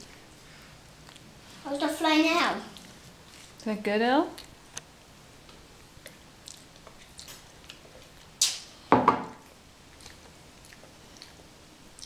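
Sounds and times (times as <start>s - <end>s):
chewing: 1.0s - 1.3s, 6.0s - 8.4s, 9.9s - 12.0s.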